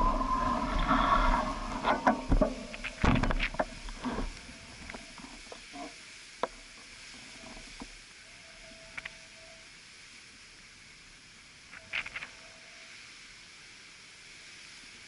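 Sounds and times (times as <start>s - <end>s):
surf: 0.0s - 8.0s
wind: 0.0s - 15.0s
faint clicks: 8.9s - 9.3s, 11.7s - 12.5s.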